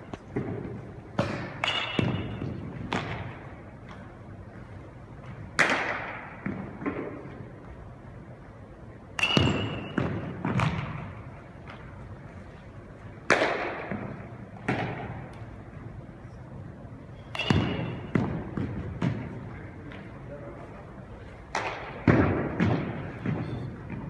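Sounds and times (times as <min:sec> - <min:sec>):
balls bouncing on gym floor: 0:00.1 - 0:04.2, 0:09.2 - 0:12.0, 0:13.2 - 0:15.5, 0:17.3 - 0:20.2, 0:21.5 - 0:24.0.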